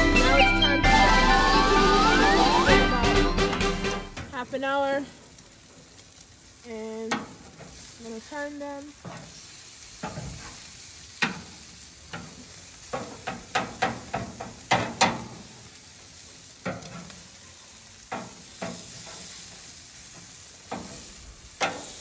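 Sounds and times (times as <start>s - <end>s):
chicken sizzling: 0.0s - 22.0s
metal tongs clicking on grill grate: 11.2s - 15.4s.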